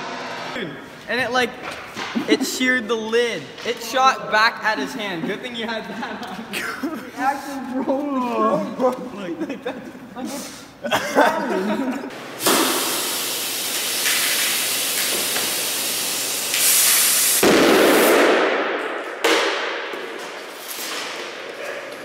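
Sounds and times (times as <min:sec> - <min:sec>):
compressed air hissing: 0:12.2 - 0:17.4.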